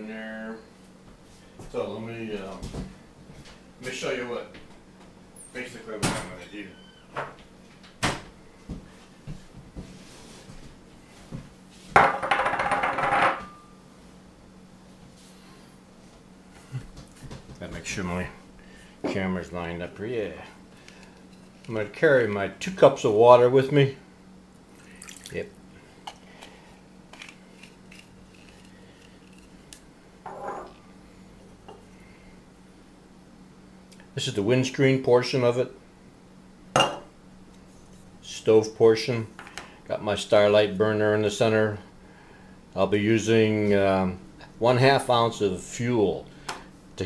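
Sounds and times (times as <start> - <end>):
faint steady hum: 0.0 - 47.0
glass bowl clunking down: 36.8 - 37.1.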